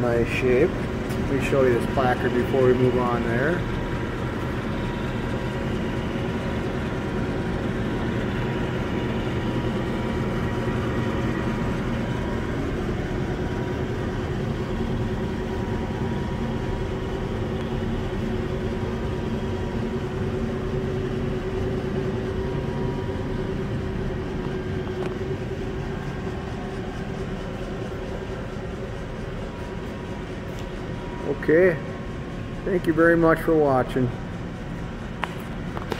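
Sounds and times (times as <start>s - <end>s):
machinery drone: 0.0s - 35.9s.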